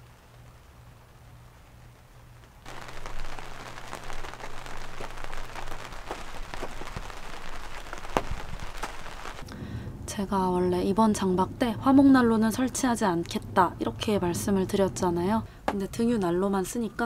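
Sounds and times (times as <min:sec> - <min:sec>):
rain ticking on tent window: 0:00.0 - 0:09.5.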